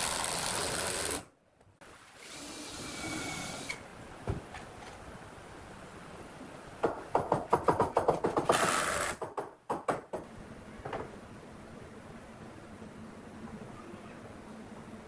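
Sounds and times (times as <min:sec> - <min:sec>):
knocks: 0:06.8 - 0:08.6, 0:09.2 - 0:11.1.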